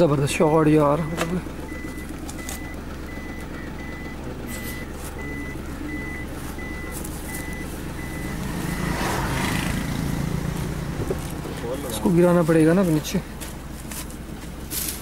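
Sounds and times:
low engine hum: 0.0s - 15.0s
reversing alarm beeping: 0.4s - 10.6s.

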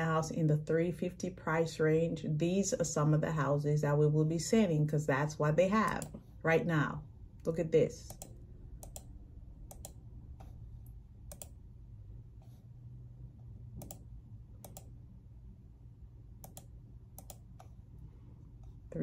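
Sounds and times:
low steady hum: 0.0s - 19.0s
computer mouse clicks: 5.8s - 6.2s, 8.1s - 11.6s, 13.7s - 15.0s, 16.4s - 17.8s.

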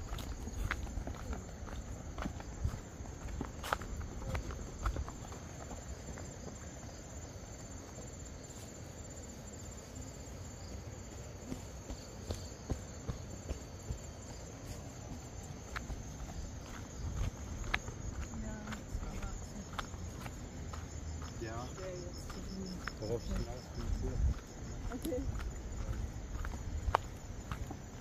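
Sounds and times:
soft footsteps: 0.0s - 7.1s, 10.5s - 28.0s
insects chirring: 0.0s - 28.0s.

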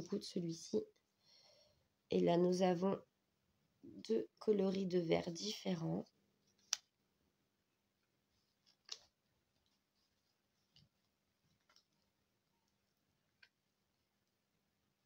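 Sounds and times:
light clicks and taps: 8.6s - 13.6s.

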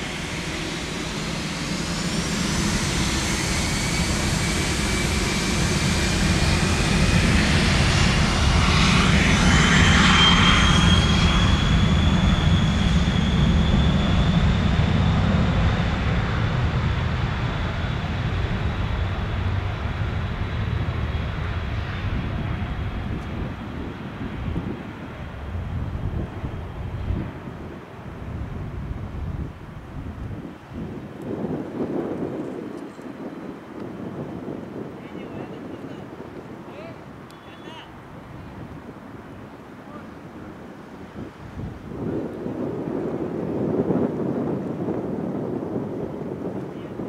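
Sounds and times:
jet engines spooling up: 0.0s - 28.0s.

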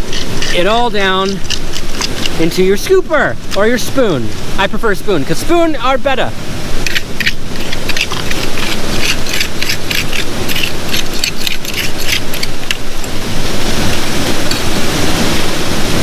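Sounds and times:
metal spoon scraping gravel: 0.0s - 3.8s, 6.8s - 13.1s
waterfall rushing: 0.0s - 16.0s.

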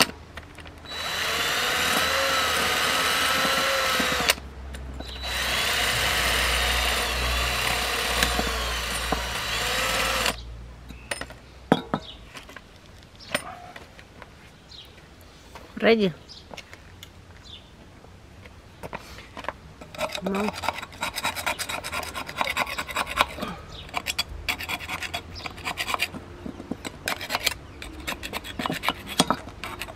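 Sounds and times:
cordless drill running: 0.9s - 4.4s, 5.2s - 10.4s.

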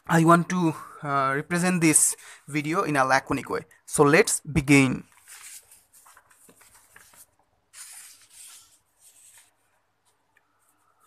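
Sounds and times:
paper sheets rustling: 5.0s - 11.0s
soft paper swishes: 5.0s - 11.0s.

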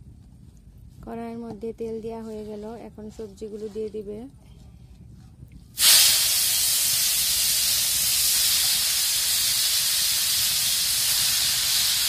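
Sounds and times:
vegetables sizzling in hot oil: 5.8s - 12.0s.

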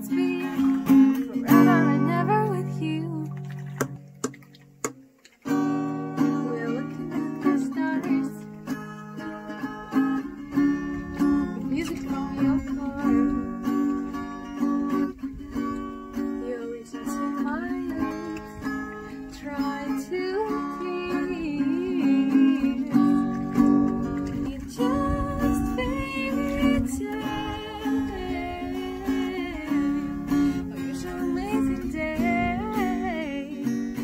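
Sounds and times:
girl singing: 0.0s - 3.5s, 6.0s - 8.5s, 9.5s - 14.1s, 15.2s - 34.0s
acoustic guitar strumming: 0.0s - 34.0s.

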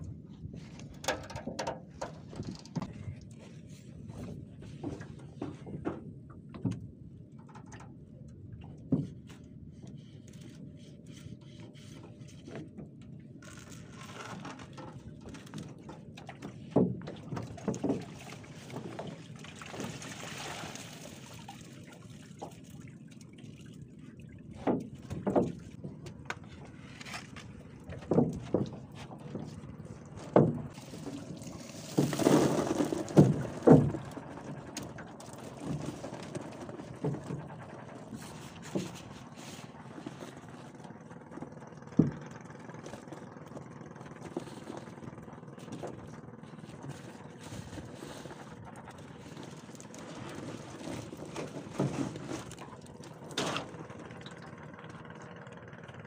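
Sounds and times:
knocks against a boat: 0.9s - 3.0s, 4.1s - 7.9s, 14.3s - 19.2s, 24.6s - 30.8s, 31.8s - 35.0s, 41.3s - 44.9s
water pouring and splashing: 16.4s - 25.8s, 30.2s - 37.4s, 46.5s - 54.5s.

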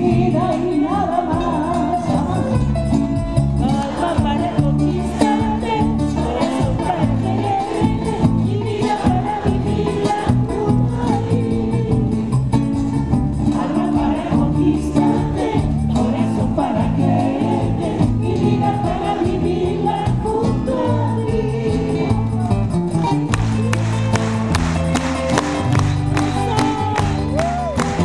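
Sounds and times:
woman singing into a microphone: 0.0s - 2.8s, 3.6s - 12.3s, 13.4s - 22.4s
acoustic guitar: 0.0s - 28.0s.

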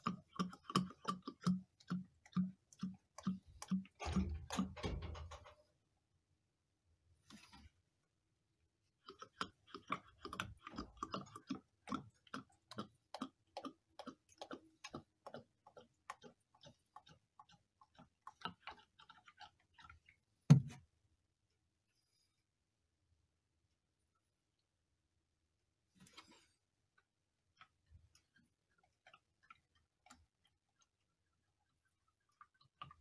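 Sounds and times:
oil glugging from plastic canister: 0.0s - 5.5s.

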